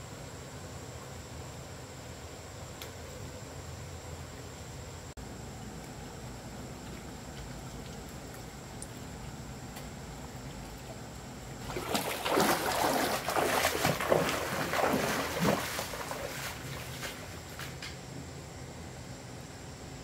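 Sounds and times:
person wading through water: 10.4 - 17.6.

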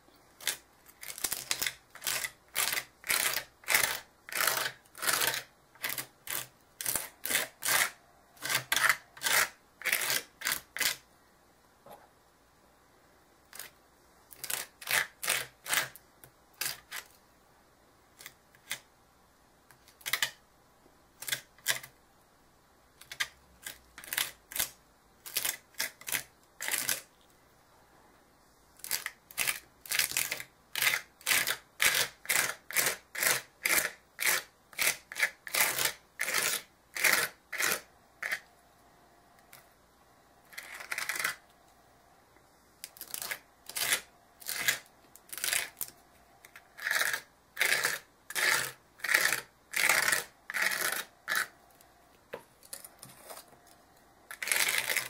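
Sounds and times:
palette knife scraping paste: 0.4 - 11.0, 13.5 - 17.2, 23.0 - 27.1, 28.8 - 38.5, 40.5 - 41.5, 42.8 - 51.6, 52.6 - 53.6, 54.3 - 55.0.

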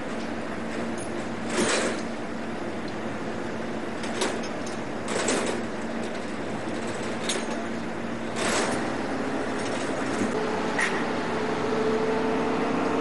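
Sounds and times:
boat engine humming: 2.1 - 13.0.

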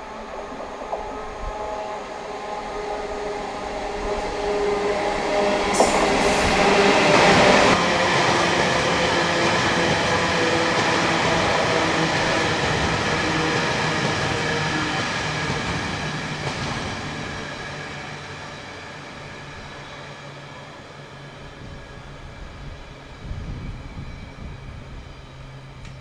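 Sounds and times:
train wagons rumbling and clattering: 0.0 - 20.4
diesel locomotive engine: 0.0 - 26.0.

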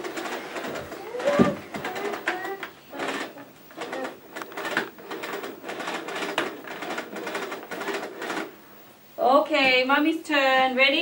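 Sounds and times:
vacuum cleaner cord reel clicking: 0.0 - 8.5.

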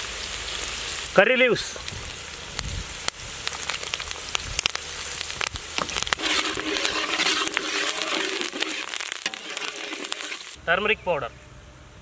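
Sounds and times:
vegetables sizzling in hot oil: 0.0 - 10.6
spatula stirring in a wok: 5.8 - 10.6.

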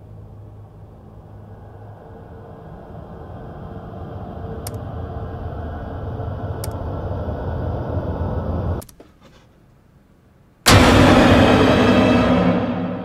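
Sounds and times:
low rumbling drone: 0.0 - 8.8, 10.7 - 13.0
faint clicks: 4.6 - 4.8, 6.6 - 6.9.

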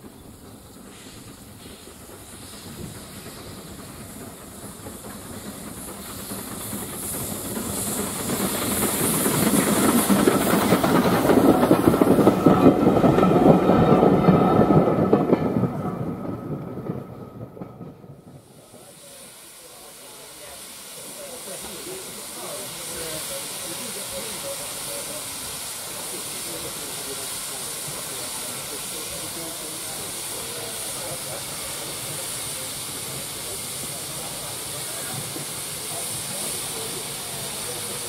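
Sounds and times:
train wheels clattering on rails: 0.0 - 19.1
steam hiss: 0.0 - 38.0.

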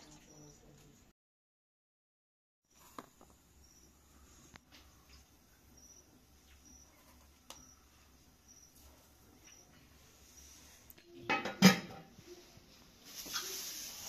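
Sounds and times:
faint high chirp: 0.0 - 0.9, 3.6 - 4.4, 5.0 - 11.3.

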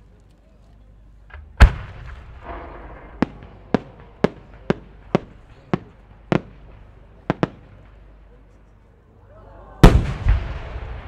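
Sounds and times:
firework cracks: 9.8 - 11.0.

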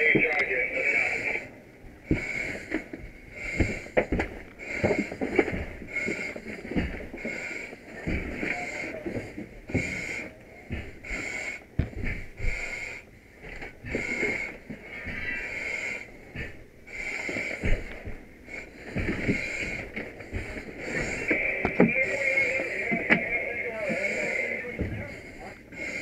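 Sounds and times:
breathing through face mask: 13.8 - 26.0.

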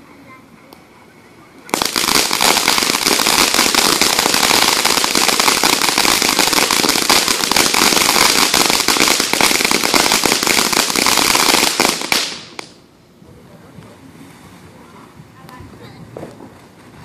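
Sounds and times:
firework crackling hiss: 1.6 - 12.9.

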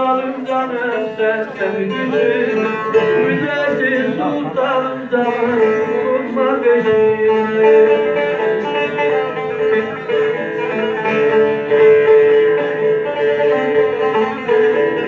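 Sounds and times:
plucked lute melody over drone: 0.0 - 15.0.

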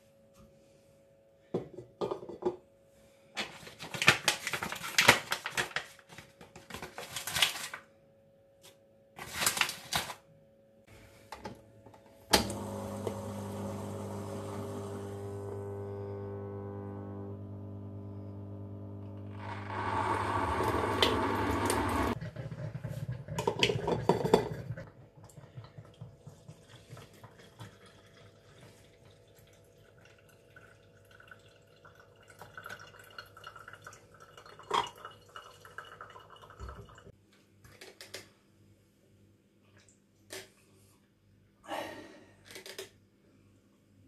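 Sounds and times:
hot water machine humming: 12.2 - 37.1
water trickling through filter: 25.2 - 37.1.

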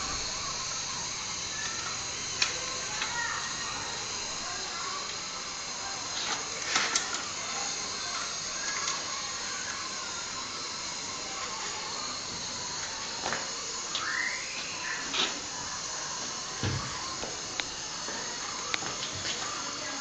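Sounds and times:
water boiling in a metal pot: 0.0 - 20.0.

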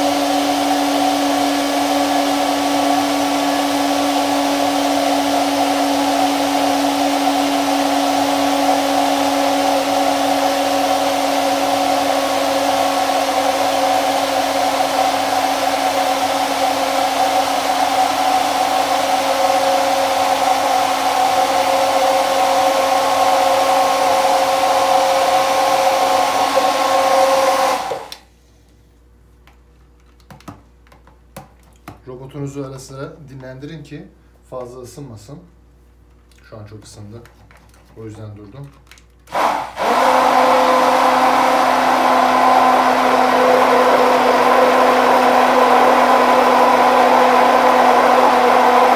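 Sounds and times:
stick blender motor whine: 0.0 - 28.2, 39.3 - 48.9.

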